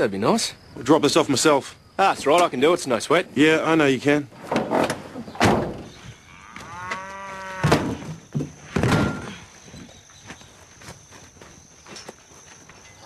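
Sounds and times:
cow mooing: 0:06.2 - 0:07.8.

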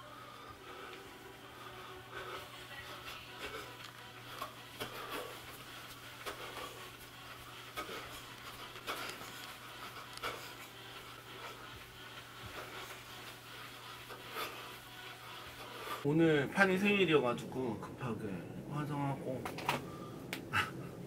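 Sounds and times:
person breathing hard: 0:00.0 - 0:03.8, 0:19.9 - 0:21.0.

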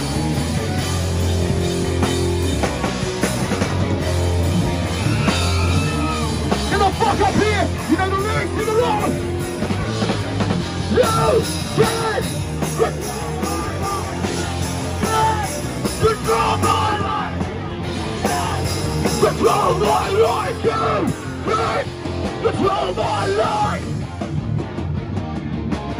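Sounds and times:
punk band playing live: 0:00.0 - 0:25.9
shouted vocals: 0:04.8 - 0:09.2, 0:10.9 - 0:23.9.

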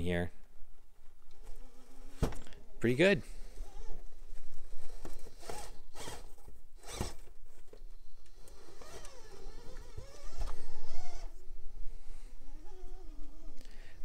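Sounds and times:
electric motor and drivetrain whining: 0:04.7 - 0:07.2, 0:08.3 - 0:11.4
short rasping bursts: 0:04.9 - 0:07.2.

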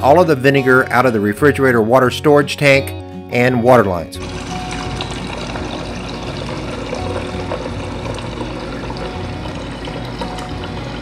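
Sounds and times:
water streaming into a container: 0:04.2 - 0:11.0.

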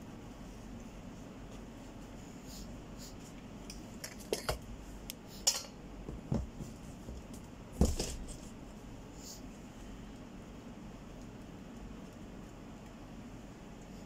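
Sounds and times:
knocks and rustles packing carton: 0:06.1 - 0:08.5.

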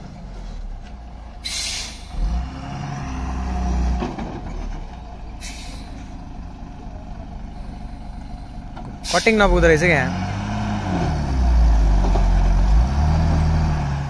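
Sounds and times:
air-brake hisses: 0:01.4 - 0:02.2, 0:05.4 - 0:06.1
heavy truck engine revving: 0:01.4 - 0:14.0.

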